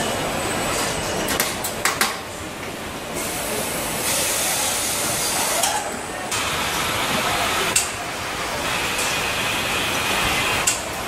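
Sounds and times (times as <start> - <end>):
steady machine hiss: 3.2 - 5.8.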